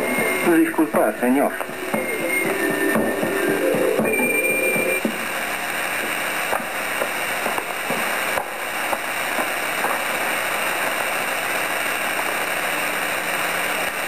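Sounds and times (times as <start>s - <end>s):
faint footsteps: 0.0s - 5.4s
old film soundtrack hiss: 0.0s - 14.0s.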